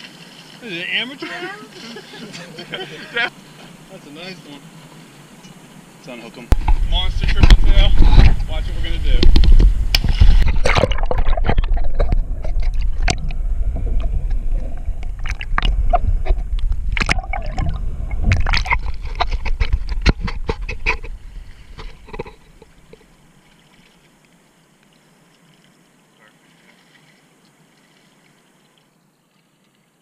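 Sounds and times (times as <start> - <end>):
faint hiss: 0.0 - 10.6, 21.0 - 30.0
water gurgling and sloshing: 3.1 - 30.0.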